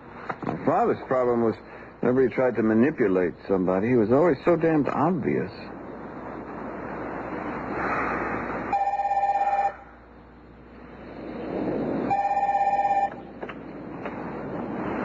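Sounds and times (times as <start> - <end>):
telephone ringing: 8.7 - 9.8, 12.1 - 13.2.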